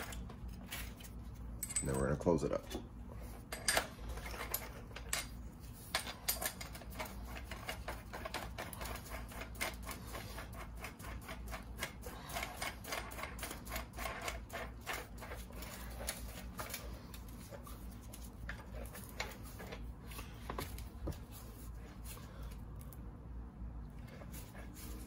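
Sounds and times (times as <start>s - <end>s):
metal clicks and clinks: 1.6s - 2.2s.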